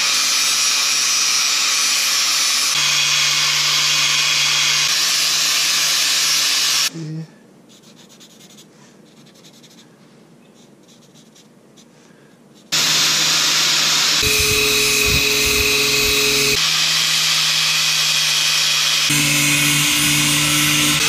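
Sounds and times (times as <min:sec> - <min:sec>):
angle grinder grinding wood: 0:00.0 - 0:06.9, 0:12.8 - 0:21.0
marker pen scratching on wood: 0:07.7 - 0:09.9, 0:10.5 - 0:12.0.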